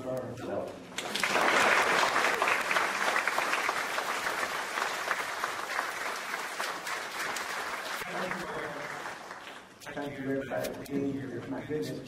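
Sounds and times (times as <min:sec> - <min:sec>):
audience applauding: 0:01.0 - 0:09.7.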